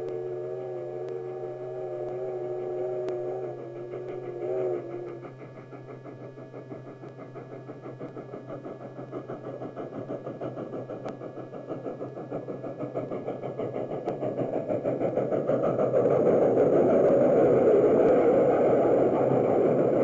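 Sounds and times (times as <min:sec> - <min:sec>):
steam locomotive chuffing: 0:00.0 - 0:20.0.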